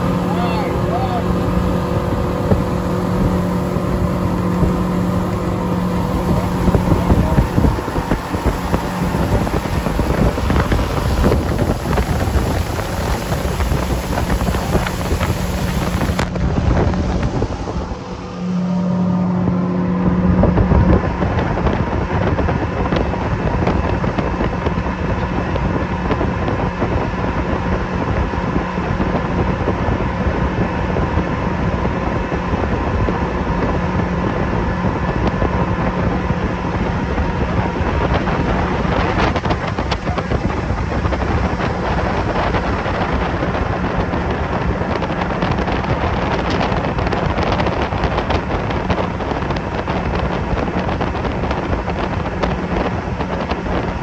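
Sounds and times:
outboard motors running: 0.0s - 54.0s
wind rushing over microphone: 0.0s - 54.0s.

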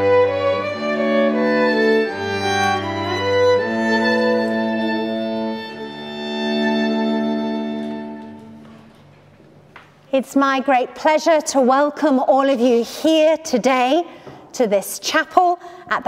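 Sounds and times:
violin: 0.0s - 8.7s
cello: 0.0s - 8.8s.

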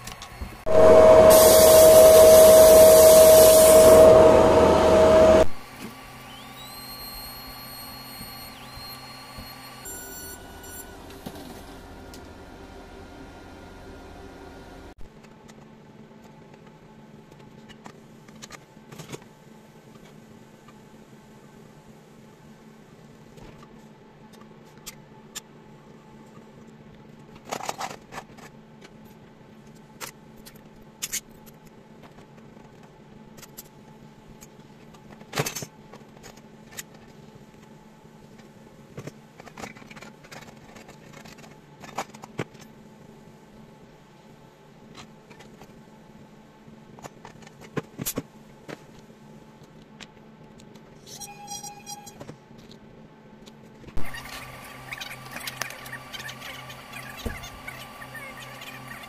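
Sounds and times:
steady low hum: 0.5s - 5.7s
brief high squeak: 0.7s - 5.5s, 51.0s - 52.2s.

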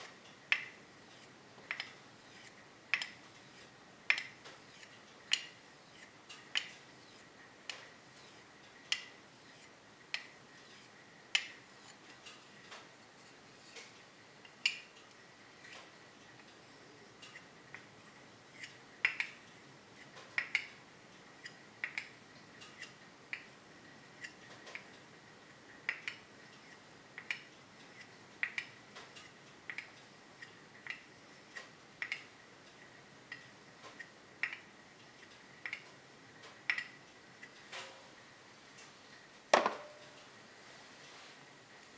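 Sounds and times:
blade scraping on sharpening stone: 1.2s - 3.7s, 10.6s - 10.9s.

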